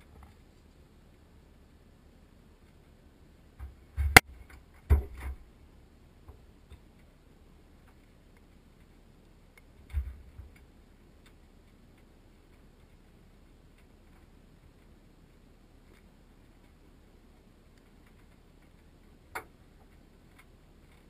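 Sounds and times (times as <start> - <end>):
dull thumps: 3.6 - 5.5.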